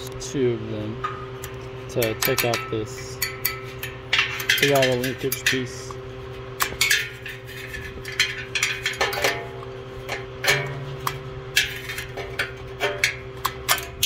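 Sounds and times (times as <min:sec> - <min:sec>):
steady low hum: 0:00.0 - 0:14.0
wrench clinking on metal parts: 0:01.9 - 0:05.9.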